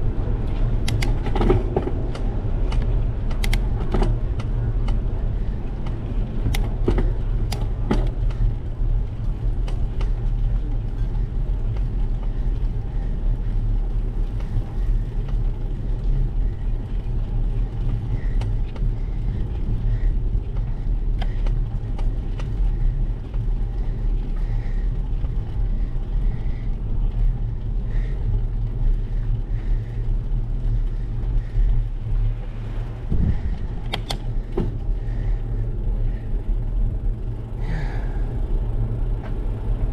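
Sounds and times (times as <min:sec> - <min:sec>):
bicycle tyre noise on asphalt: 0:00.0 - 0:39.9
wind buffeting: 0:00.0 - 0:39.9
sharp clicks: 0:00.8 - 0:01.2, 0:02.1 - 0:03.7, 0:33.8 - 0:34.3.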